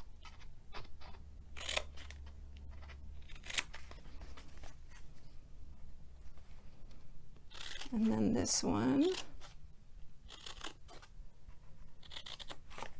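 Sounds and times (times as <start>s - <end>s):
scissors snipping cardstock: 12.0s - 12.9s.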